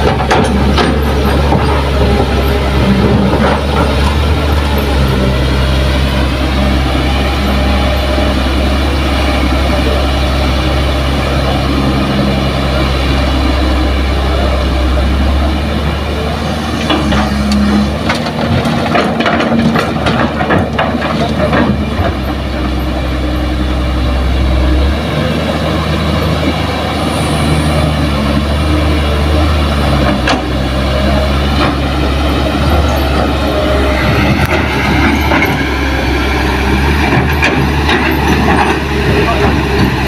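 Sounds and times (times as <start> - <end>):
diesel engines running: 0.0 - 40.0
soil and rocks clattering into truck: 18.0 - 22.2.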